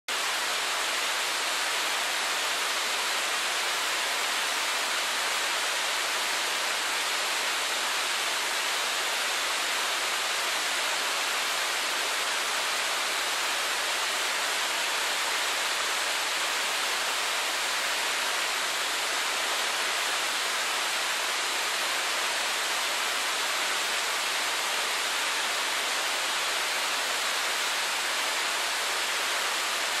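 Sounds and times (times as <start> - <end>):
waterfall rushing over rock: 0.1 - 30.0.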